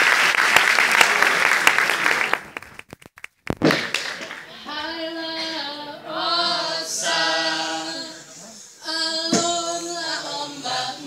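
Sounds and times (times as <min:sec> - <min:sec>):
group chanting unaccompanied: 0:05.6 - 0:11.0.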